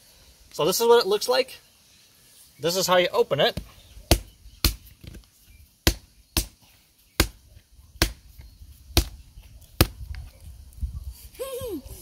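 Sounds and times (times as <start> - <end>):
seed pod knocking on asphalt: 3.5 - 5.2, 9.0 - 9.2.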